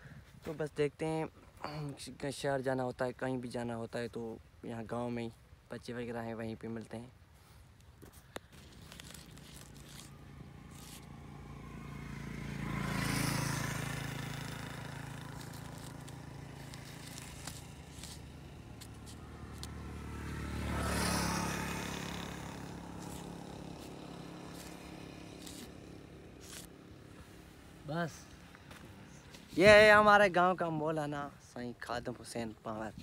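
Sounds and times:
motor vehicles passing: 8.5 - 30.2
marker scratching on plastic sack: 8.6 - 11.1, 15.3 - 19.7, 23.0 - 26.7.

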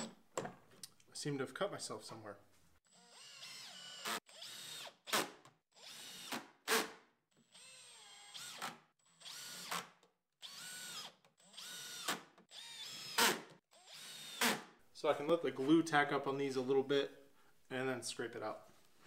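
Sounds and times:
cordless drill whining: 2.9 - 6.8, 7.4 - 14.6.

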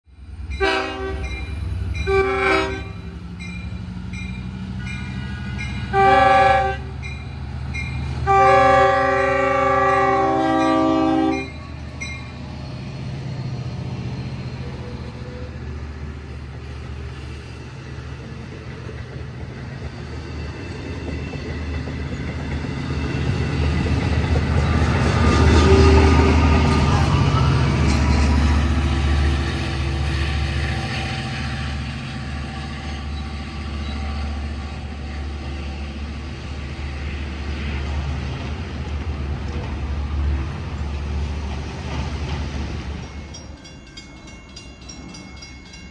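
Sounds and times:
diesel locomotive rumble: 0.1 - 45.9
locomotive horn blasts: 0.6 - 1.4, 2.0 - 3.1, 5.9 - 6.9, 8.2 - 11.7
bell ringing: 43.0 - 45.9.

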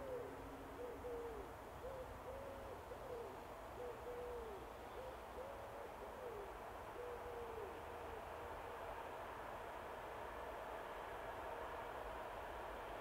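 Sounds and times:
bird hooting: 0.0 - 8.3
faint background noise: 0.0 - 13.0.

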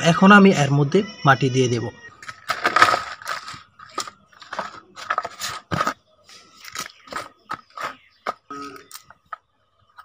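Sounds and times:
soil scraping against plastic: 2.2 - 9.1.

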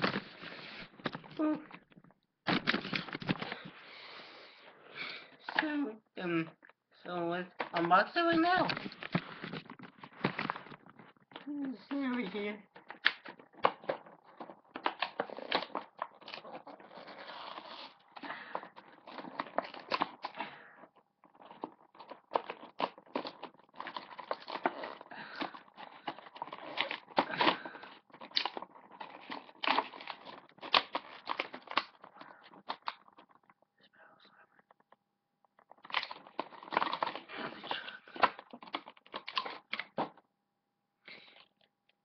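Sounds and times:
blister package tearing and crinkling: 2.5 - 3.6, 12.2 - 33.5, 35.6 - 40.1.

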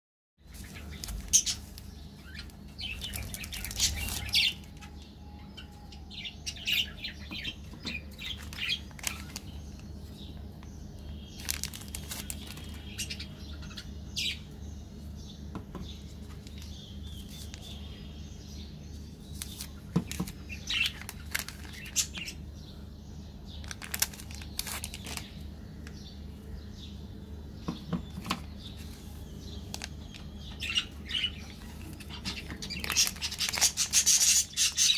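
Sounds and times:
steady low hum: 0.4 - 34.9
plastic wrappers crinkling and tearing: 0.5 - 5.0, 8.2 - 10.0, 11.3 - 13.2, 19.3 - 22.4, 23.6 - 25.4, 29.6 - 30.6, 31.6 - 34.8.

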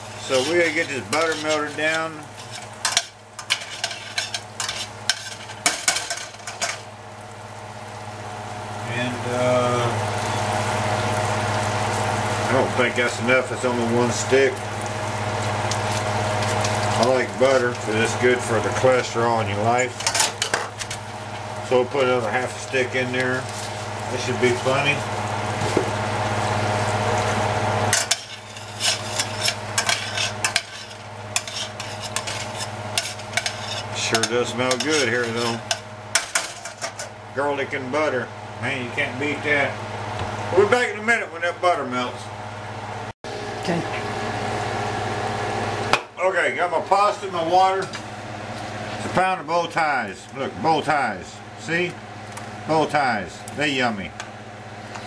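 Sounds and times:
oil sizzling: 0.0 - 55.0
steady hum: 0.0 - 55.0
metal tongs clacking on skillet: 0.7 - 6.8, 27.9 - 37.1.

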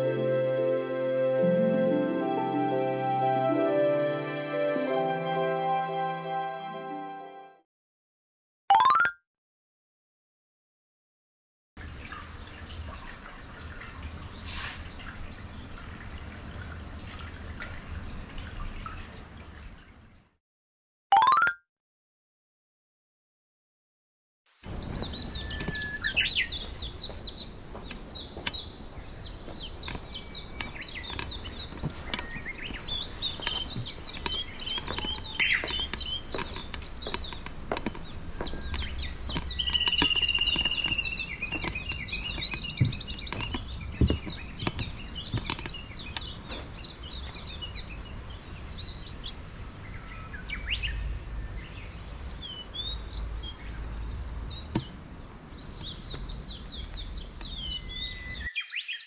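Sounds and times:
songbirds chirping and trilling: 12.1 - 16.8, 24.6 - 59.0
wind rumble on microphone: 24.7 - 58.5.

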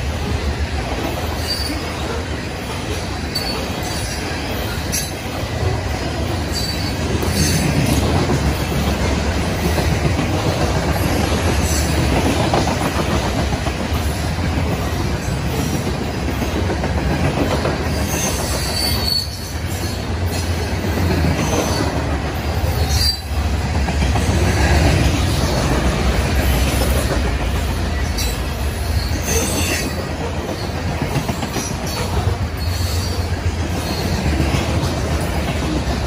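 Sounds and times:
train wheels rumbling on rails: 0.0 - 36.0
high-pitched wheel squeals: 6.4 - 7.7, 18.0 - 20.0, 22.8 - 23.4, 31.6 - 34.2.

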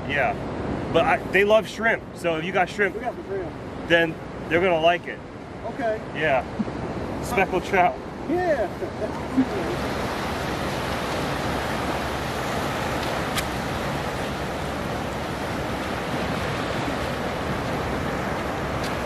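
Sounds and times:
surf breaking on beach: 6.5 - 19.0.

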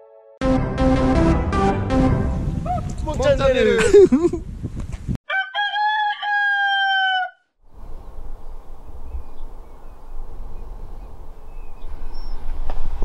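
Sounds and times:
rooster crowing: 5.3 - 7.5.

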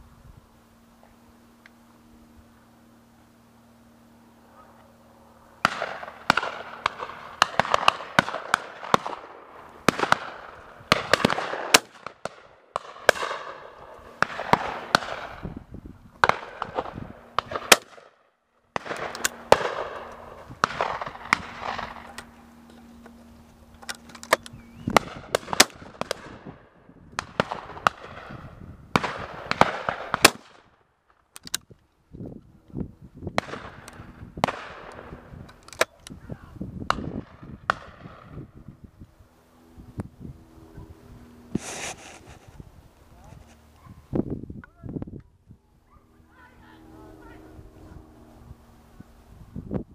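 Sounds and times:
shotgun shots echoing: 5.6 - 15.4, 16.2 - 18.2, 18.8 - 22.1, 25.0 - 26.4, 27.2 - 30.7.

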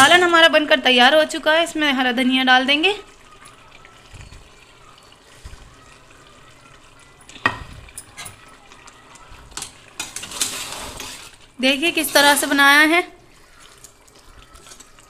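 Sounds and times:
curry simmering with sizzle: 0.0 - 15.0
metal ladle knocking pot: 7.4 - 8.4.

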